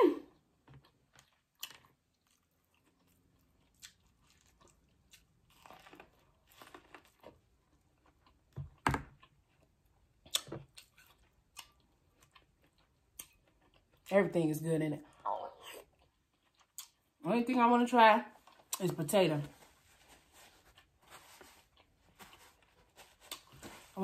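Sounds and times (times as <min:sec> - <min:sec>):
chewing corn on the cob: 0:00.7 - 0:14.1.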